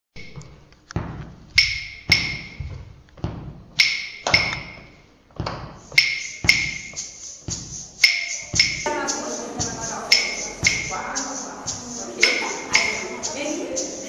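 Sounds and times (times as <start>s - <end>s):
percussion instrument hits ringing: 6.0s - 7.0s, 8.0s - 11.0s.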